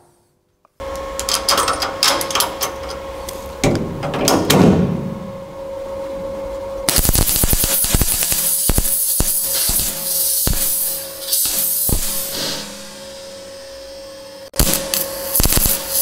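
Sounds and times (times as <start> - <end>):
steady hum: 0.0 - 16.0
welding arc crackling and hissing: 6.9 - 16.0.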